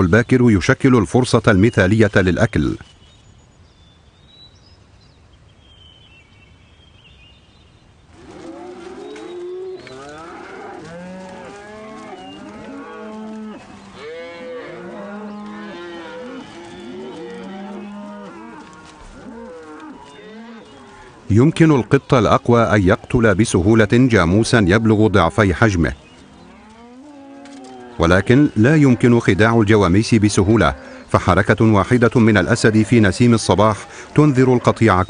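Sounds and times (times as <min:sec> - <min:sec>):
buffalo lowing and grunting: 0:08.2 - 0:23.1, 0:30.4 - 0:31.2.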